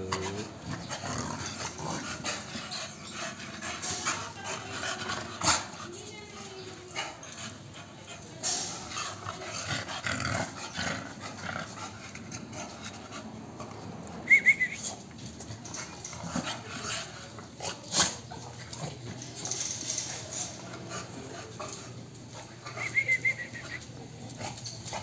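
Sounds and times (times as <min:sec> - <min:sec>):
dogs scuffling and growling: 0:00.0 - 0:14.2, 0:14.8 - 0:25.0.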